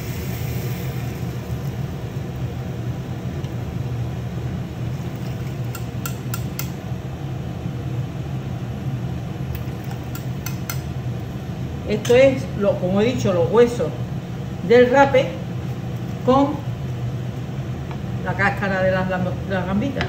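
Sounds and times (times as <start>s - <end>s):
kitchen machine humming: 0.0s - 7.6s, 8.4s - 16.8s.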